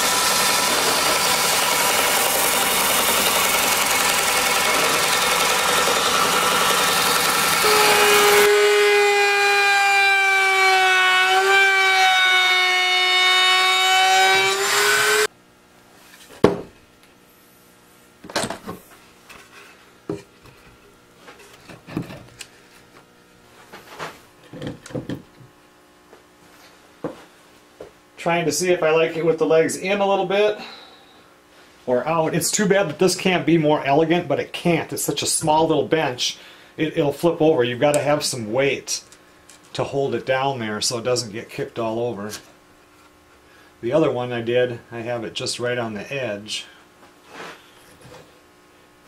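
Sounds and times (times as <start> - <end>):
benchtop sander sanding board: 0.0 - 15.3
router table high whine: 0.0 - 15.3.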